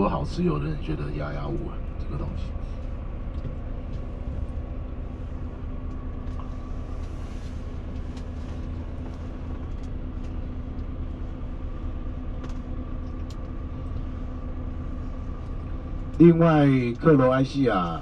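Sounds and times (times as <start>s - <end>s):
coach diesel engine hum: 0.0s - 18.0s
faint clicks and rattles: 7.9s - 11.0s.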